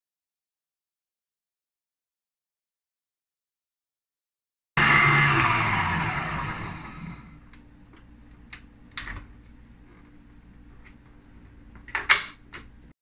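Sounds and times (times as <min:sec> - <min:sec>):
stand mixer motor running: 0:04.8 - 0:07.4.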